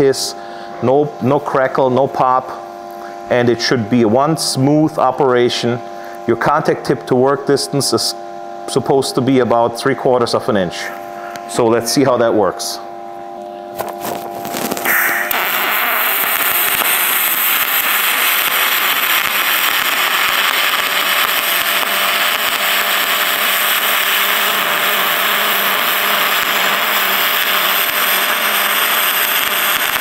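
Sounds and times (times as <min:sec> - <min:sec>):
welding arc hissing: 0:13.8 - 0:30.0.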